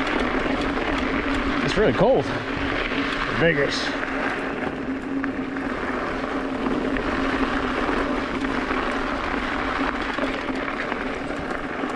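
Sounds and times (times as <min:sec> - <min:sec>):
bike tyres on dirt trail: 0:00.0 - 0:11.9.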